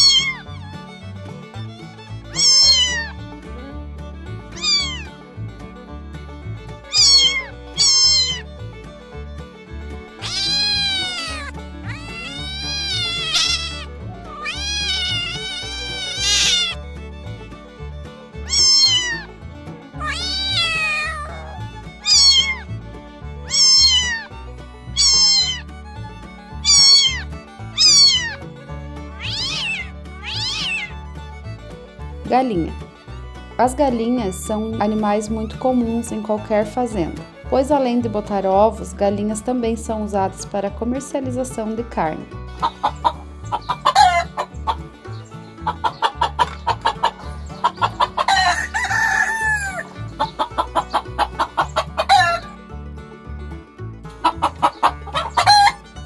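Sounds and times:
cat meowing: 0.0 - 0.5, 2.3 - 3.2, 4.6 - 5.2, 6.9 - 8.6, 10.2 - 16.8, 18.4 - 19.3, 20.0 - 22.7, 23.4 - 24.3, 24.9 - 25.7, 26.5 - 28.4, 29.2 - 31.0
soft background music: 0.0 - 56.0.

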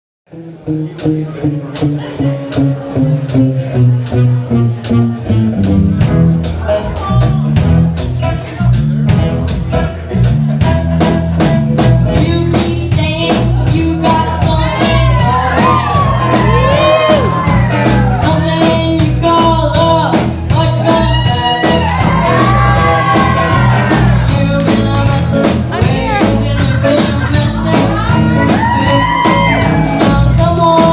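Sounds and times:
live rock band playing: 0.3 - 30.9
girl singing: 12.1 - 17.2, 18.0 - 21.8, 23.9 - 30.9.

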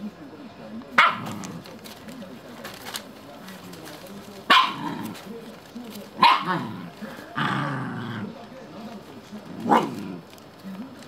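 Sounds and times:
dog barking sharply: 1.0 - 1.4, 4.5 - 5.0, 6.2 - 6.7.

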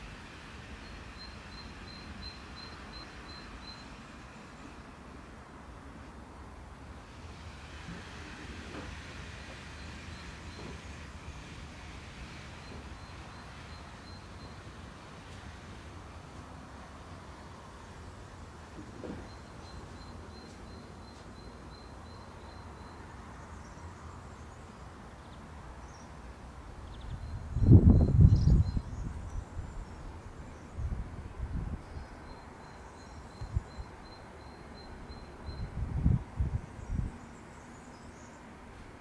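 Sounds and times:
wind blowing through grass: 25.7 - 39.0
wind buffeting microphone: 27.0 - 32.0, 35.5 - 37.2.

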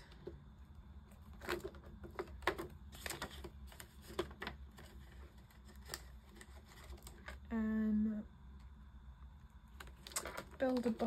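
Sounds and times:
plastic crinkling clicks: 9.8 - 11.0.

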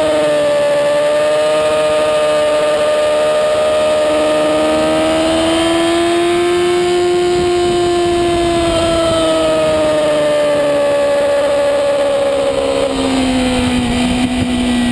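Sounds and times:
motorcycle engine at high revs: 0.0 - 14.9
wind rush: 7.1 - 14.9.

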